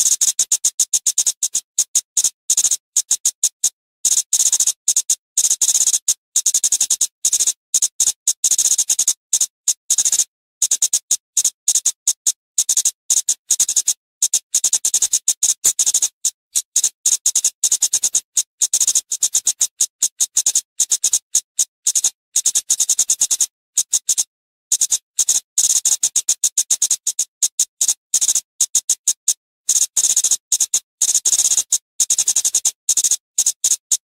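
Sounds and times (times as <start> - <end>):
bird high-pitched ticking calls: 12.7 - 24.2, 24.8 - 34.0.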